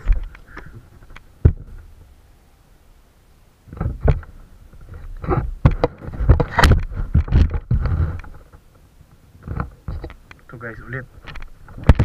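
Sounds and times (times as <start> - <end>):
rustling: 3.7 - 12.0.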